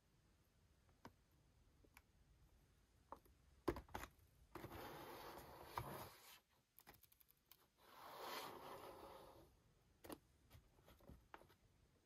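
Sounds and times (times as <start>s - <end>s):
box rubbing scrape: 7.9s - 9.4s.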